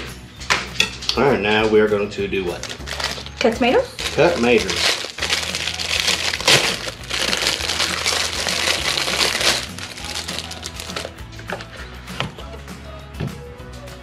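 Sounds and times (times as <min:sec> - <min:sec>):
crinkling handling noise: 0:02.5 - 0:11.8.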